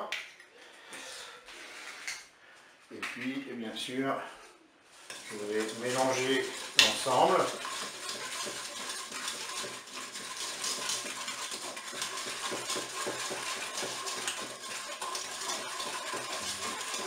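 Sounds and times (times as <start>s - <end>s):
whisk scraping and tapping bowl: 5.0s - 17.0s.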